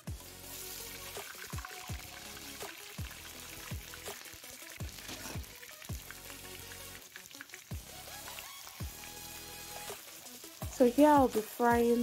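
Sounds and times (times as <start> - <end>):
music with deep bass beat: 0.0 - 4.1, 7.7 - 10.0
onions sizzling in hot oil: 0.0 - 12.0.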